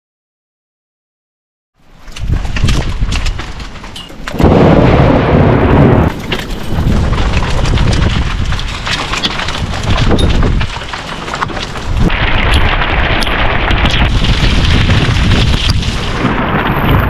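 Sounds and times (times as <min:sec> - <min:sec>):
wind buffeting microphone: 0:02.0 - 0:11.0, 0:11.6 - 0:17.0
heavy rain pattering: 0:02.2 - 0:17.0.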